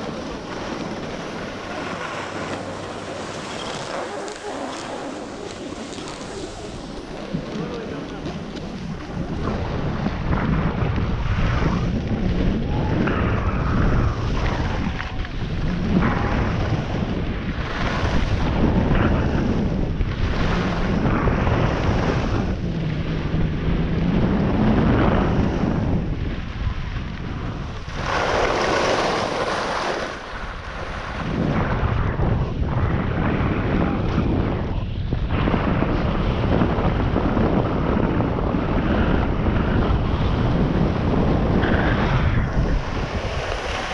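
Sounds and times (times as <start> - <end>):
ski edges scraping snow: 0.0 - 9.2, 27.9 - 30.3
wind buffeting microphone: 0.0 - 43.9.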